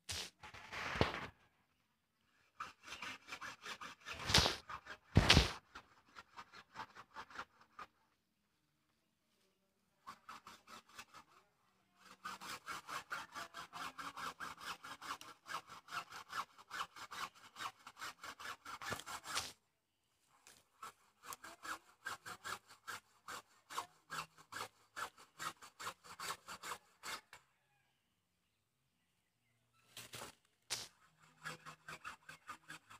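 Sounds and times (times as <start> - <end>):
hand saw cutting bamboo: 2.4 - 8.0, 10.0 - 19.6, 20.4 - 27.4, 30.0 - 32.9.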